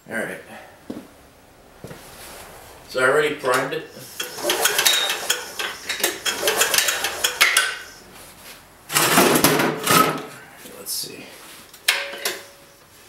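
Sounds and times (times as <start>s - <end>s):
metal scrape: 1.8s - 9.4s.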